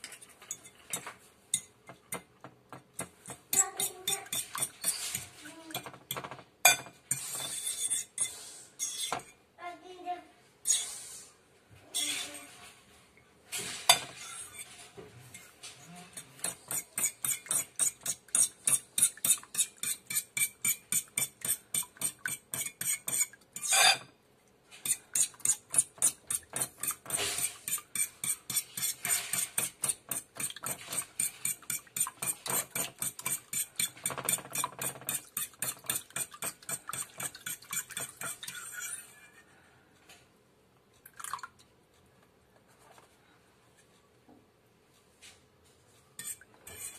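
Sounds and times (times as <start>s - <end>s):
fork beating eggs in a bowl: 0.0s - 9.4s, 11.9s - 12.4s, 13.9s - 24.1s, 24.8s - 39.5s, 46.2s - 46.9s.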